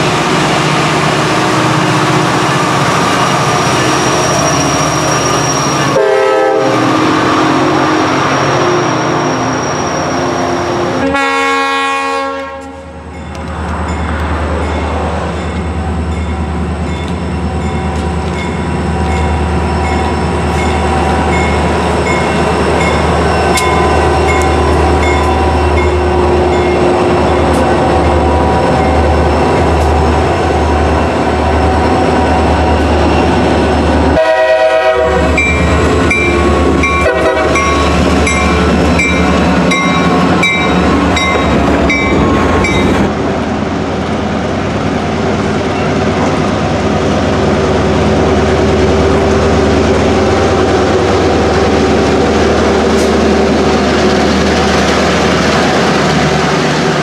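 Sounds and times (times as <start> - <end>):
diesel locomotive engines: 0.0 - 57.0
crossing bell ringing: 12.9 - 29.8, 35.3 - 43.1
train wheels clacking on rails: 35.2 - 43.2.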